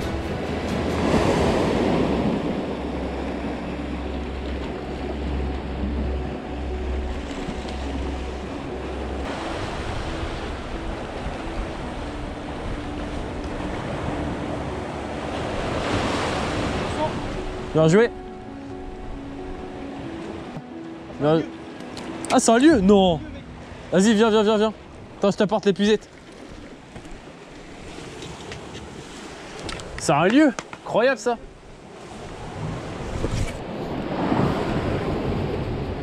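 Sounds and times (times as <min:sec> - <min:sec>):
wind on microphone: 0:31.5 - 0:36.0.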